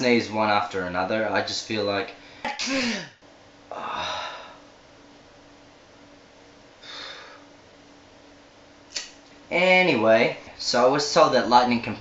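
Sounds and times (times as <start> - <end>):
faint steady hum: 0.0 - 12.0
man breathing out forcefully: 2.3 - 3.1, 6.8 - 7.5
man sighing: 3.7 - 4.6, 6.8 - 7.4.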